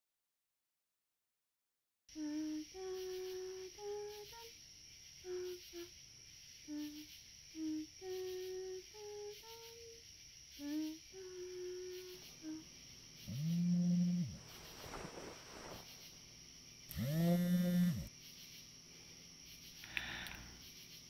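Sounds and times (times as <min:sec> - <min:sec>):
person humming a tune: 0:02.1 - 0:04.6, 0:05.2 - 0:06.0, 0:06.6 - 0:14.6, 0:16.9 - 0:18.1.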